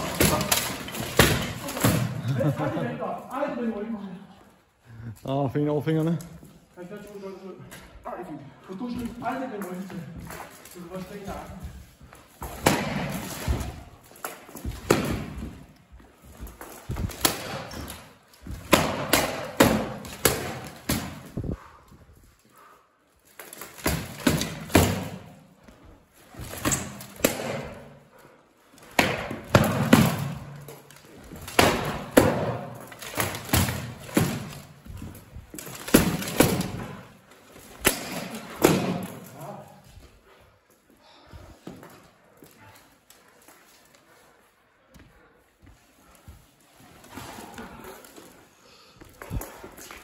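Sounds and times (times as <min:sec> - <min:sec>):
padded swords thudding and slapping: 0:00.0 - 0:02.5, 0:12.1 - 0:21.6, 0:23.4 - 0:25.4, 0:26.3 - 0:28.0, 0:28.9 - 0:39.6.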